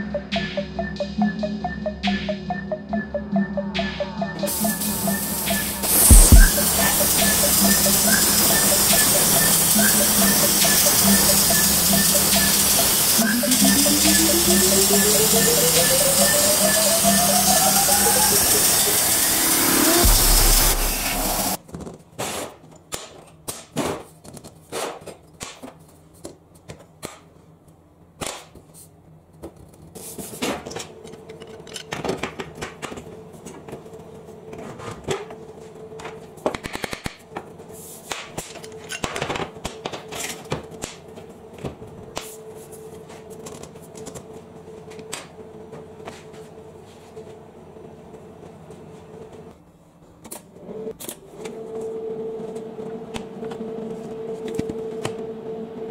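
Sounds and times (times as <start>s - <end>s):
steady low hum: 0.0s - 21.6s
plasma cutter arc hissing: 4.5s - 21.6s.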